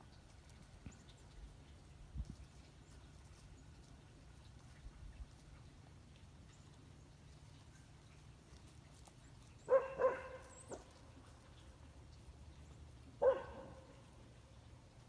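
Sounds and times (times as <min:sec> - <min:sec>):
dog barking: 0:09.7 - 0:10.9, 0:13.2 - 0:14.0.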